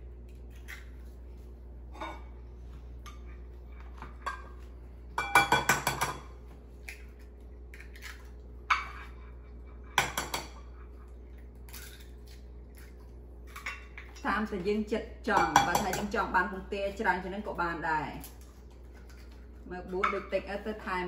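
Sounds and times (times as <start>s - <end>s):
eggs tapped and cracked on bowl: 5.2s - 6.2s, 10.0s - 10.6s.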